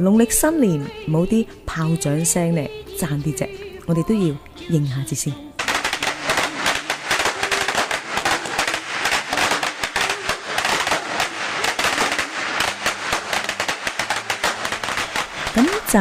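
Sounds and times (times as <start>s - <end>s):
firecrackers crackling: 5.6s - 16.0s.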